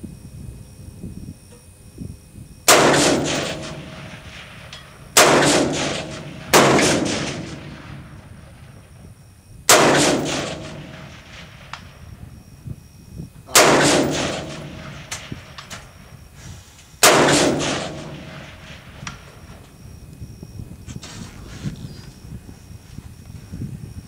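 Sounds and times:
rifle shots echoing: 2.7s - 8.9s, 9.7s - 12.2s, 13.5s - 16.1s, 17.0s - 19.6s.

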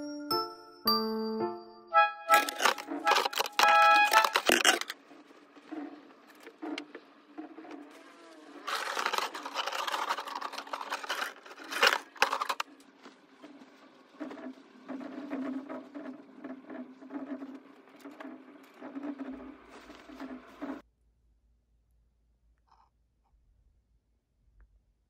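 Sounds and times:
clothes hangers clattering: 2.3s - 5.0s, 8.6s - 12.6s
clothes rustling: 8.6s - 15.1s.

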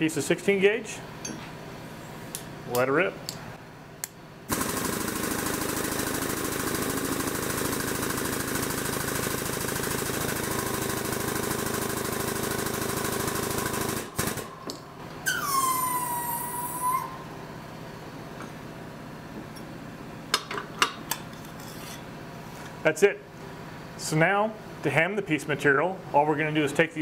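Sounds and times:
squeal falling in pitch: 15.2s - 17.3s.

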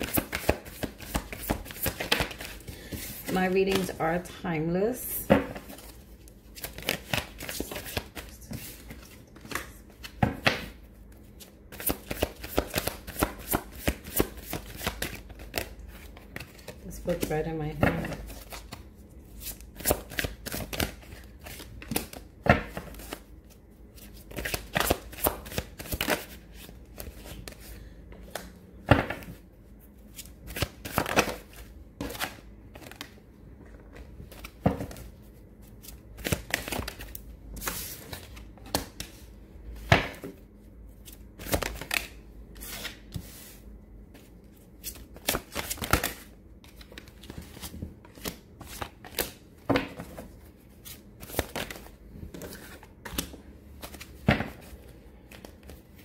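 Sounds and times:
cards shuffling and snapping: 0.0s - 4.0s, 5.6s - 10.7s, 11.7s - 16.8s, 19.4s - 23.3s, 24.0s - 28.5s, 44.8s - 49.4s.

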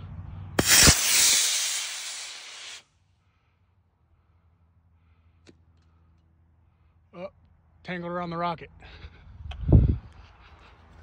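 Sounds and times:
rocket motor igniting crack: 0.6s - 2.8s
rocket thrust hissing rush: 0.6s - 2.8s.

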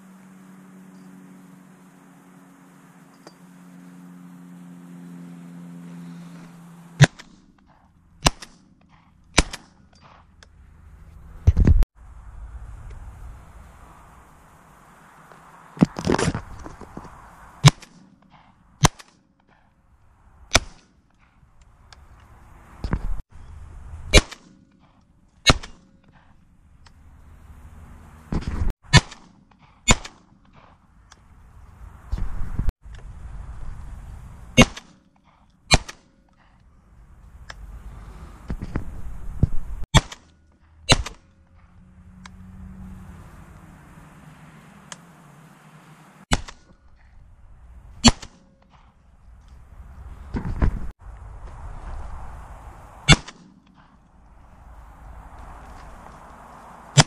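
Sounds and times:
shotgun shots: 7.0s - 8.7s, 9.3s - 10.2s, 24.1s - 24.6s, 25.4s - 25.9s, 28.9s - 30.7s, 34.6s - 35.0s, 35.7s - 36.1s, 39.9s - 41.2s, 46.3s - 46.7s, 48.0s - 48.9s, 53.0s - 53.6s.

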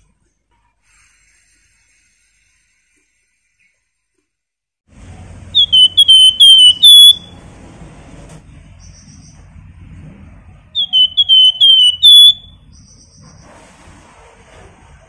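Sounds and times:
bird singing whistled song: 5.6s - 7.4s, 10.8s - 13.4s.

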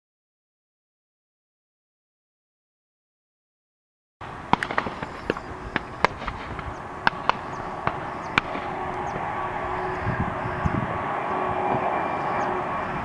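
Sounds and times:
distant jet engines rumbling: 4.2s - 13.0s.

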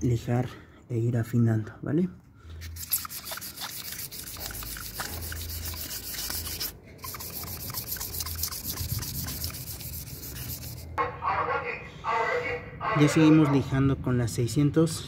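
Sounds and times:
sandpaper rubbing on metal: 2.6s - 11.0s.

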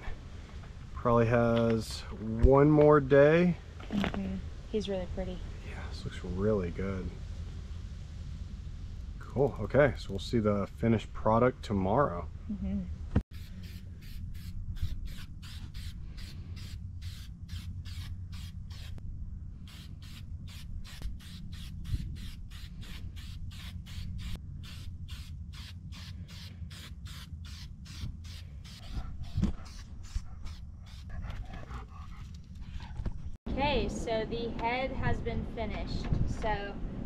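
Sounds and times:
steady low rumble: 0.0s - 37.0s
aerosol spray can hissing: 13.4s - 19.0s, 19.7s - 31.1s.

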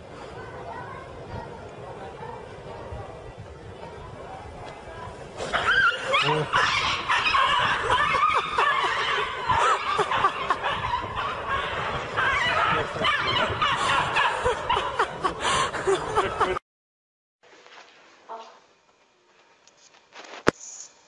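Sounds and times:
people laughing and chattering: 0.0s - 16.6s.

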